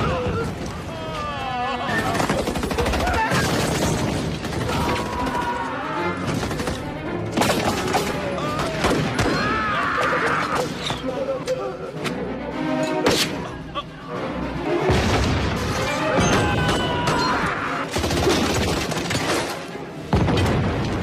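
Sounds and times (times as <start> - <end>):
film score music: 0.0 - 21.0
rifle and machine-gun fire: 2.0 - 5.5, 17.9 - 19.5.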